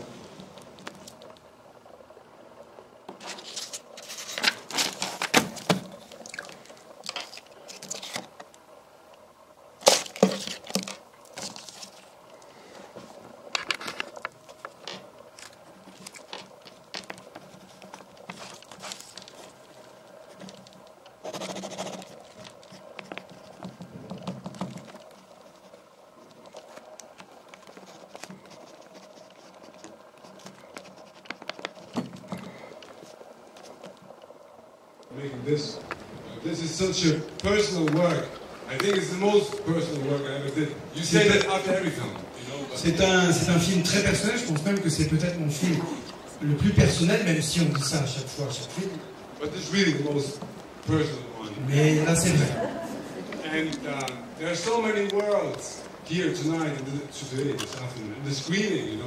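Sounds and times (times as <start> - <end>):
faint steady hum: 0.0 - 59.0
pages rustling: 3.1 - 8.6, 9.8 - 12.3, 12.9 - 34.2
pen scratching on paper: 21.2 - 23.6.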